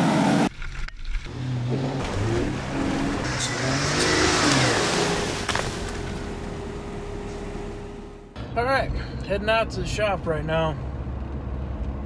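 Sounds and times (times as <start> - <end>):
car engine revving: 1.3 - 8.4.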